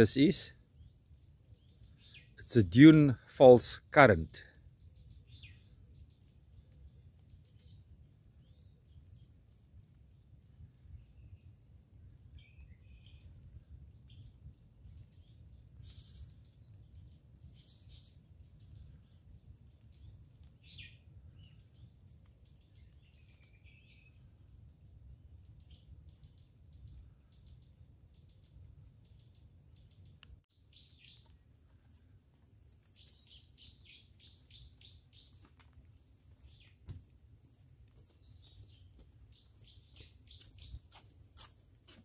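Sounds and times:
bird chirps and calls: 0:15.8 - 0:16.5, 0:30.7 - 0:31.3, 0:32.9 - 0:35.4, 0:38.0 - 0:41.0.

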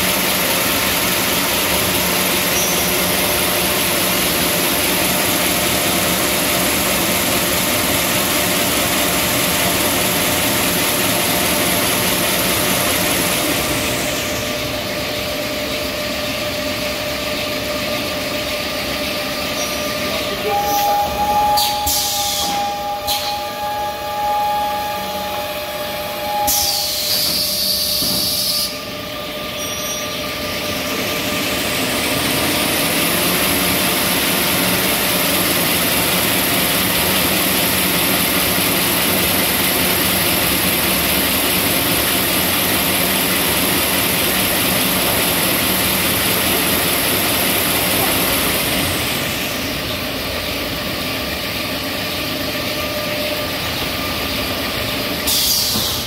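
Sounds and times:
machine whine: 0:00.0 - 0:56.0
short hiss of air: 0:55.3 - 0:56.0.

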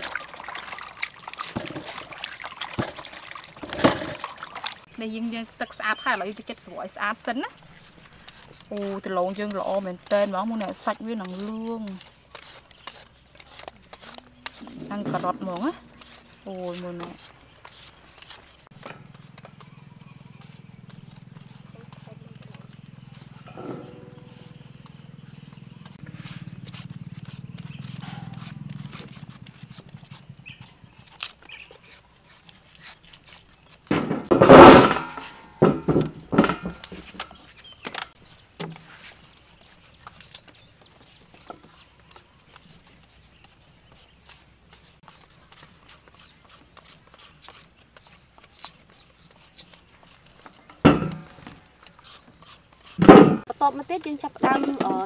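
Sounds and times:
clatter on steel tray: 0:02.8 - 0:04.4, 0:33.9 - 0:37.4, 0:54.3 - 0:55.0
knives scraping vegetable skin: 0:05.3 - 0:34.9, 0:36.3 - 0:55.0.

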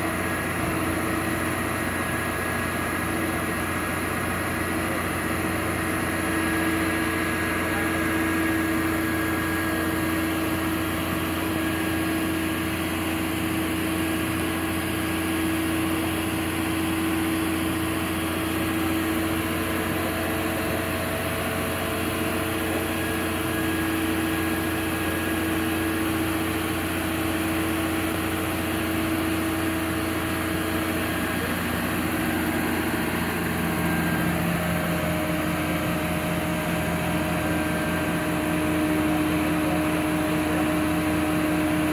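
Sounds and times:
garbage truck engine idling: 0:00.0 - 0:41.9.

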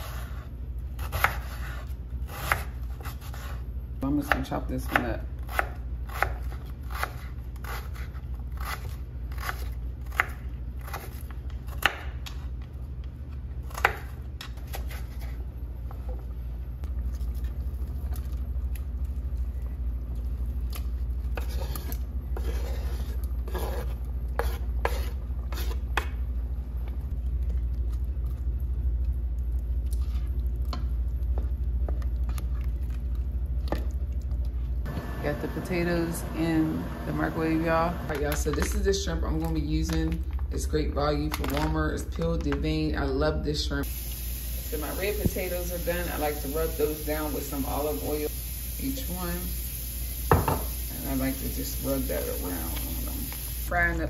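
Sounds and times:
steady low hum: 0:00.0 - 0:41.1
knife chopping on wooden board: 0:04.3 - 0:12.1
scraping onion into metal saucepan: 0:21.4 - 0:25.9.

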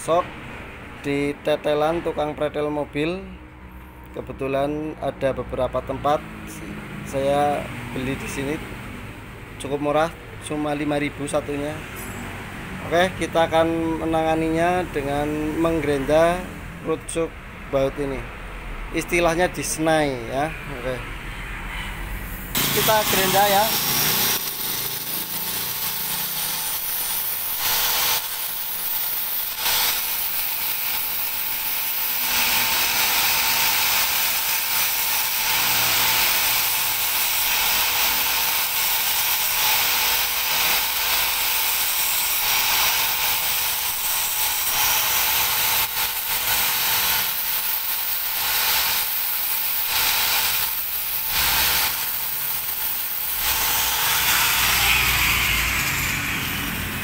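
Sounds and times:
angle grinder grinding metal: 0:22.4 - 0:57.0.

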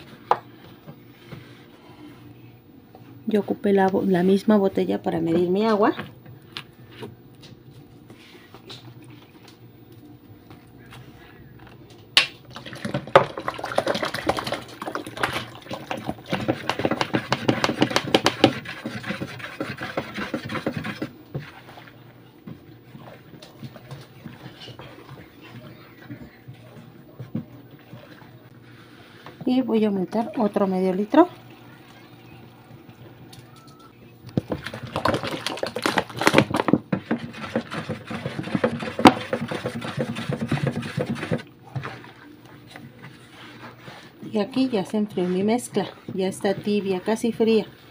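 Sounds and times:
water splashing into basin: 0:12.5 - 0:16.3, 0:34.4 - 0:36.6
soapy water sloshing: 0:12.5 - 0:22.1, 0:34.4 - 0:47.9
wooden spoon stirring and clacking: 0:12.7 - 0:22.0, 0:34.4 - 0:47.7.

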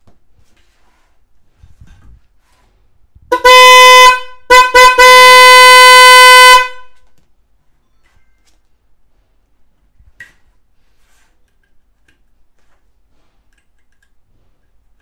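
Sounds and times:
electric horn honking: 0:03.3 - 0:07.0.

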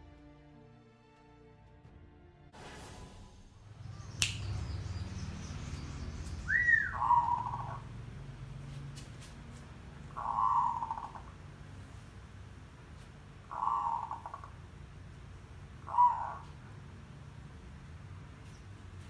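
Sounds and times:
sharp click: 0:04.2 - 0:04.6
dove cooing: 0:06.5 - 0:08.0, 0:10.1 - 0:11.4, 0:13.5 - 0:14.6, 0:15.8 - 0:16.8.

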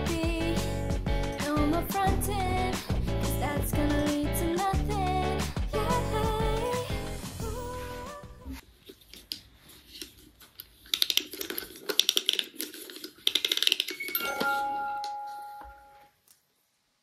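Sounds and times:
music box chime notes: 0:14.0 - 0:16.1.

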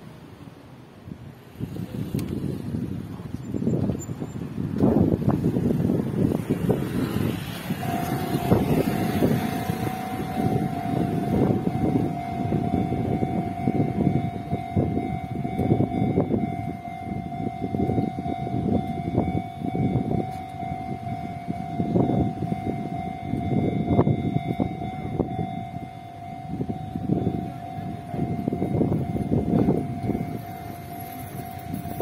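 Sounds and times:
passing cars: 0:00.0 - 0:32.0
wind rumble: 0:00.0 - 0:32.0
level crossing alarm: 0:07.0 - 0:32.0.

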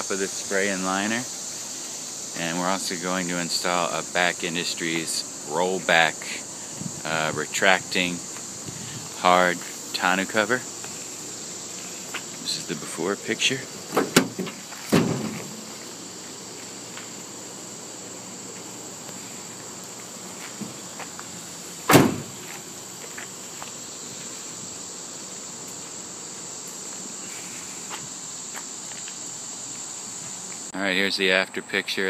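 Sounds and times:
insects chirring: 0:00.0 - 0:32.0
dull thump: 0:13.9 - 0:15.6, 0:21.9 - 0:22.6.

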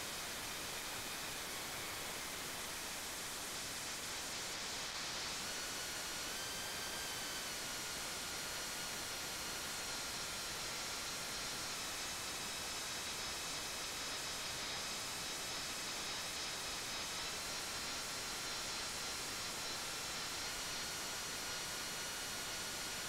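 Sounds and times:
static-like hiss: 0:00.0 - 0:15.4.

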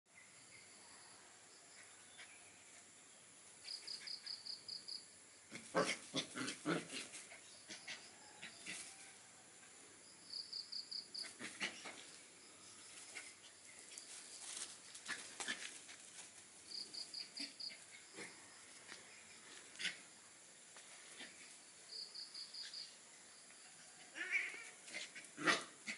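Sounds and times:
animals scuffling: 0:12.9 - 0:16.8.

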